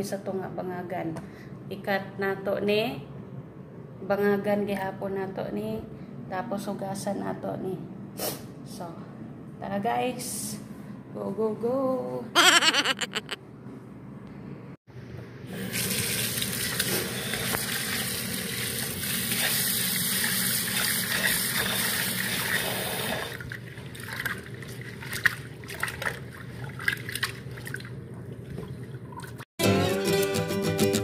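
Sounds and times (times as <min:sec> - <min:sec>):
water splashing in bowl: 0:23.5 - 0:29.4.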